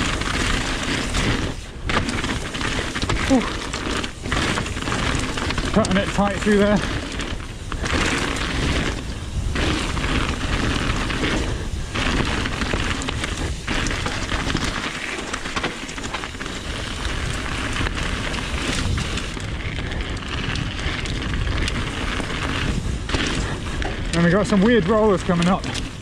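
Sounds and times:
bike tyres crunching on gravel: 0.0s - 26.0s
wind buffeting microphone: 0.0s - 26.0s.

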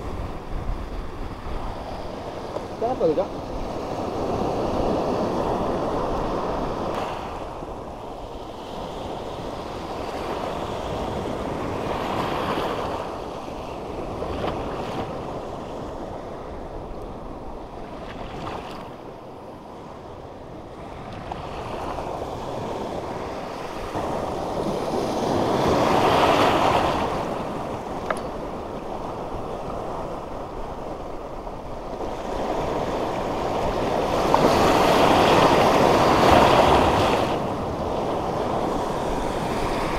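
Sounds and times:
sea surf washing over reef: 0.0s - 39.9s
wind buffeting microphone: 0.0s - 39.9s.

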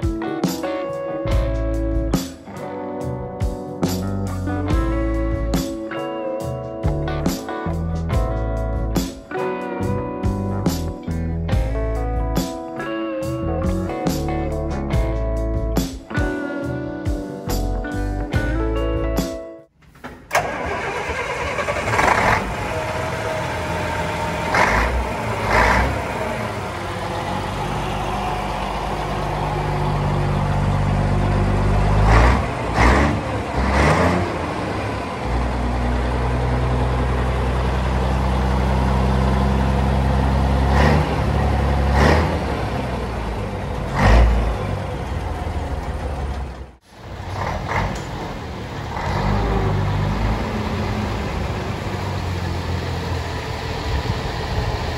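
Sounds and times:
diesel engine idling: 20.3s - 54.9s
engine throttle blips: 20.3s - 54.9s.

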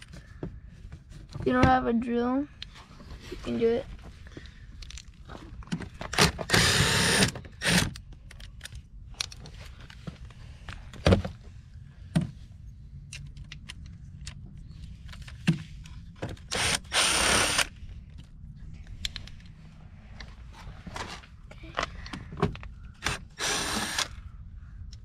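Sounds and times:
impact driver spinning: 23.0s - 24.2s.

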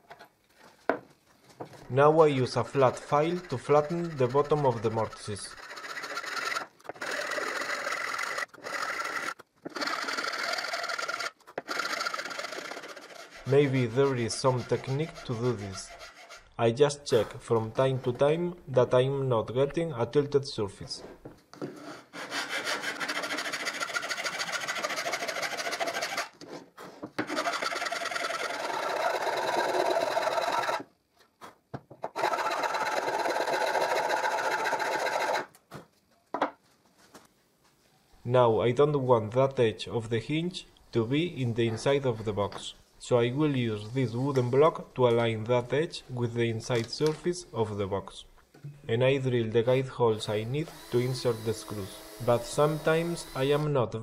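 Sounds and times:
metal file rasping on wood: 2.7s - 16.5s, 21.8s - 26.3s, 50.3s - 53.6s.

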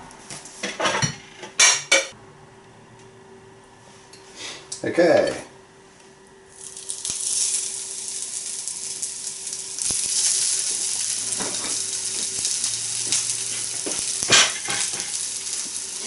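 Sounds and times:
patties sizzling in a frying pan: 6.5s - 16.0s.

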